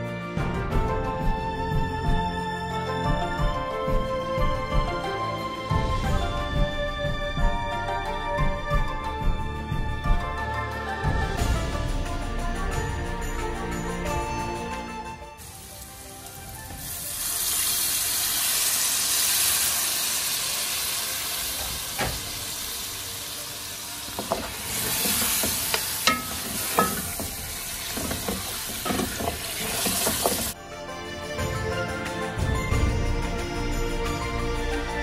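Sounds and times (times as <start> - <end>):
meat sizzling in oil: 15.4 - 30.6
spatula knocking against pot: 24.2 - 30.6.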